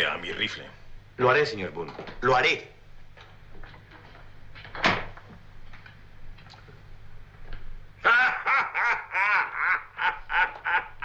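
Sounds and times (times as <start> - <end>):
low steady hum: 0.0 - 11.0
wooden door shutting: 4.6 - 5.3
man laughing loudly: 8.0 - 11.0.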